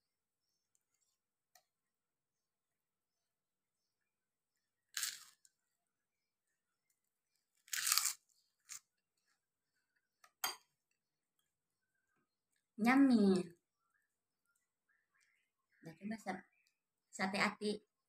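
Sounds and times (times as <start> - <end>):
cracker crunching: 4.9 - 5.5, 7.5 - 8.9.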